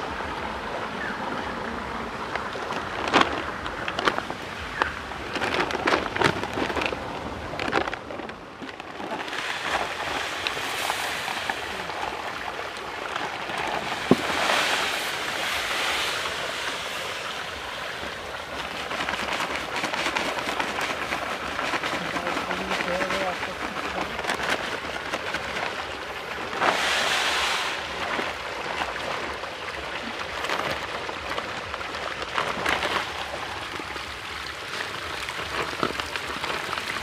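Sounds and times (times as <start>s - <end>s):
pellets pouring into metal basin: 26.6s - 28.2s.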